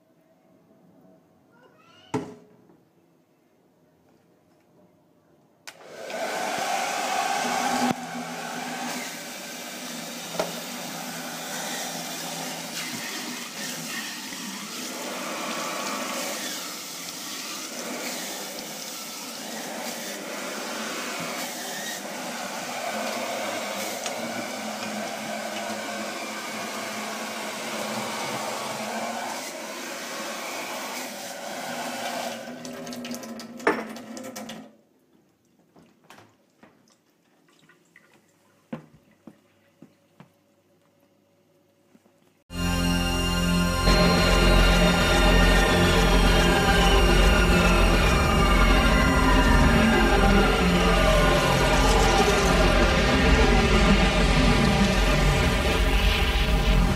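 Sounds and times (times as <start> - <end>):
hair dryer whirring: 5.7 - 32.6, 42.5 - 56.9.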